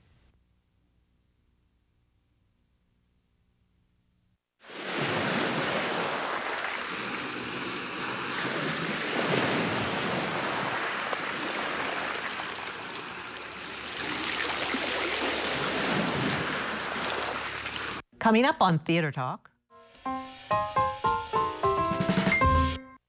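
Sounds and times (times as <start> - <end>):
ocean waves washing in: 4.6 - 18.0.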